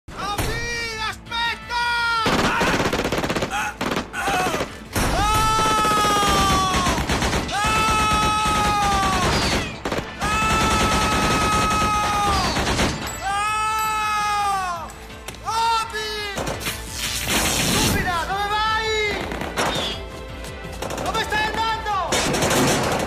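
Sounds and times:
rapid gunfire: 2.2 - 4.9, 5.6 - 13.1, 19.2 - 20.0, 20.8 - 23.0.

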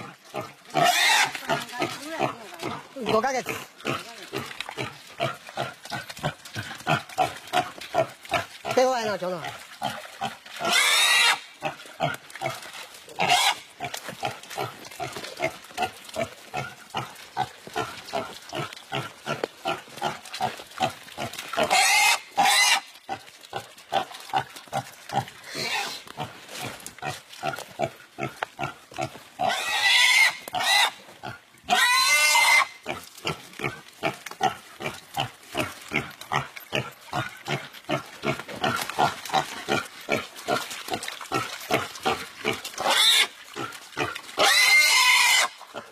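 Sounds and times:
pig squealing: 0.0 - 4.5, 10.6 - 11.8, 13.2 - 13.7, 21.6 - 22.9, 25.5 - 26.0, 29.4 - 31.0, 31.7 - 32.9, 42.8 - 43.4, 44.4 - 45.6
pig screaming: 0.8 - 2.3, 10.6 - 11.5, 21.6 - 22.9, 31.7 - 32.8, 44.4 - 45.6.

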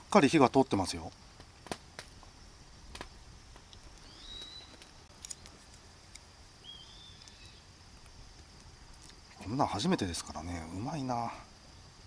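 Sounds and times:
faint high insect drone: 0.0 - 12.0
short whistle-like calls: 4.0 - 4.8.

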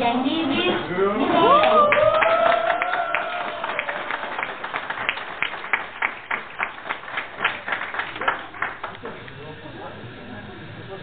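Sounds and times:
small group applauding: 1.4 - 9.4.

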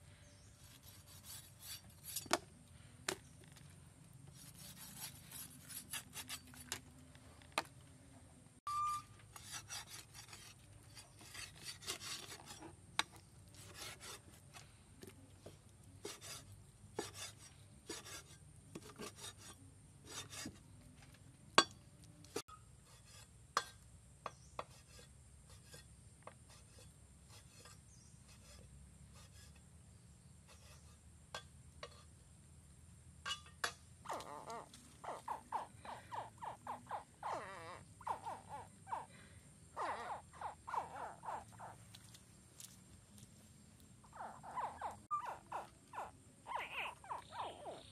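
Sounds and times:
knife scraping: 0.6 - 2.5, 4.3 - 6.9, 9.0 - 14.6, 16.0 - 20.6, 22.4 - 23.8, 24.5 - 29.7, 30.4 - 32.1
pulsing animal calls: 34.1 - 39.1, 39.7 - 41.9, 44.1 - 47.9.

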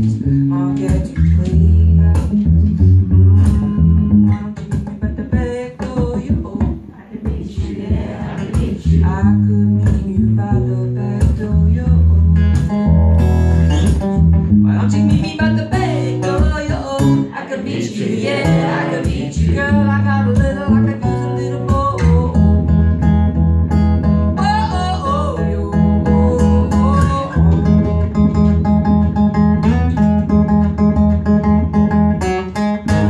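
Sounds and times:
strummed acoustic guitar: 0.0 - 33.0
man singing: 4.3 - 12.3, 14.5 - 22.4, 24.4 - 27.8.

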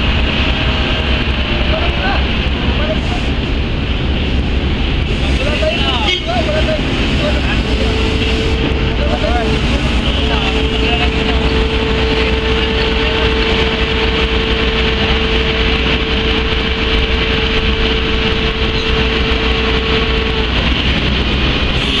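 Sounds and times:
engine rumbling: 0.0 - 22.0
steady machine hum: 0.0 - 22.0.

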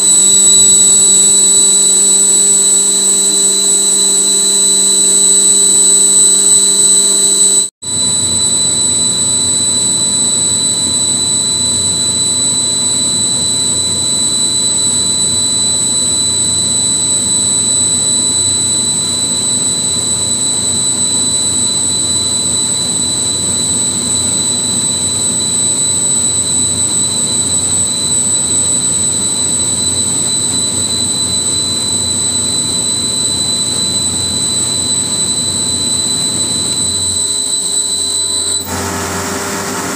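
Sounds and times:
high-pitched whine: 0.0 - 39.9
air compressor running: 33.8 - 39.9.

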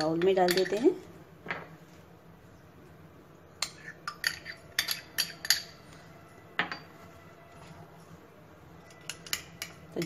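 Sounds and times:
spoon clinking against glass bowl: 0.0 - 1.0, 3.6 - 5.9, 8.8 - 10.0.

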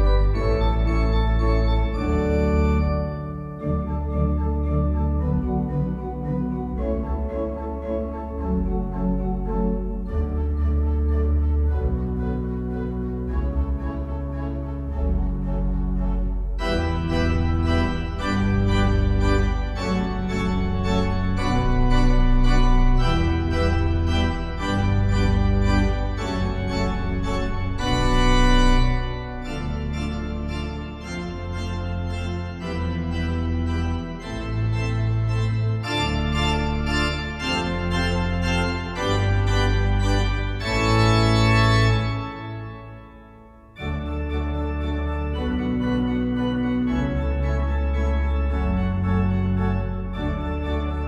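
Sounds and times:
deep organ pedal bass: 0.0 - 51.0
pipe organ playing chords: 0.0 - 51.0.

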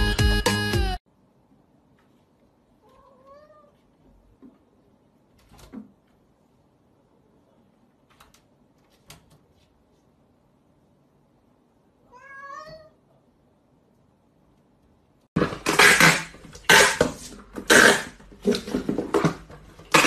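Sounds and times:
cat meowing: 2.8 - 3.8, 12.1 - 13.0.

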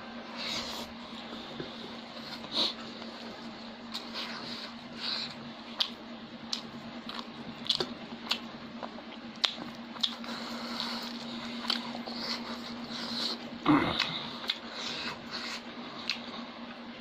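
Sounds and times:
wet chewing: 3.9 - 16.4.

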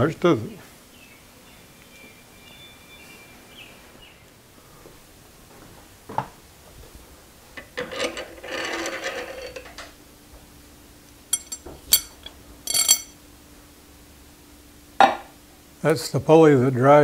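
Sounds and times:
ringing metal scraping: 11.3 - 13.2
sharp metal clinks: 11.3 - 13.2.

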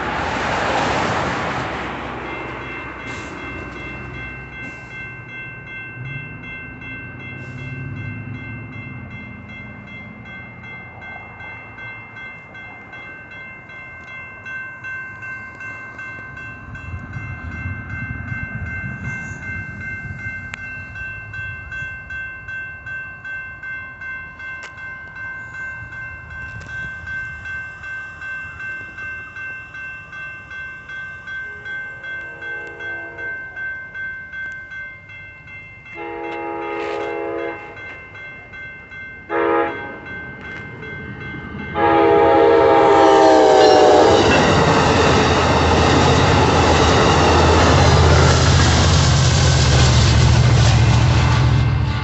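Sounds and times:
train cars clickety-clack: 0.0 - 21.8, 35.8 - 52.0
railroad crossing bell ringing: 0.0 - 52.0
train horn blasts: 31.5 - 33.4, 36.0 - 37.9, 39.3 - 40.1, 41.8 - 44.7.

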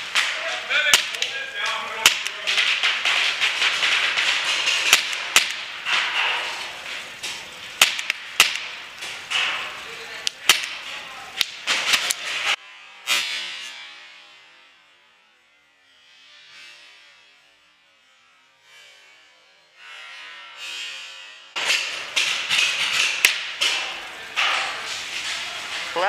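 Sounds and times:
steady hiss: 0.0 - 12.6, 21.6 - 26.0.

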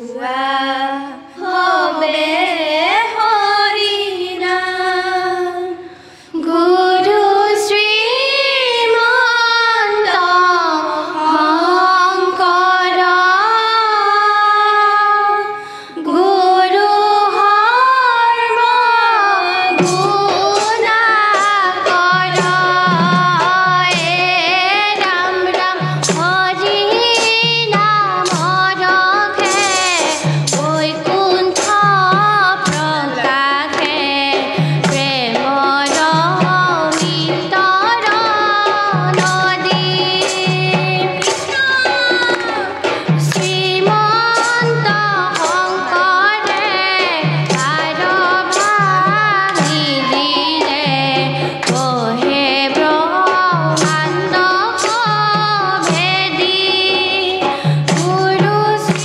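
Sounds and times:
girls singing in unison: 0.0 - 59.0
hand drum beat: 19.7 - 59.0.

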